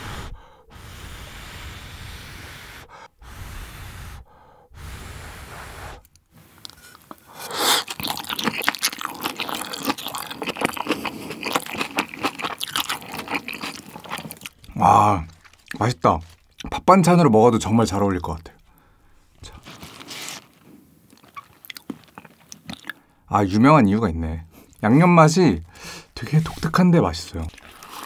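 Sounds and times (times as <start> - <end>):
breathy noise: 0.0 - 7.9
wet crunchy chewing: 6.6 - 16.8, 19.4 - 23.0, 26.2 - 28.0.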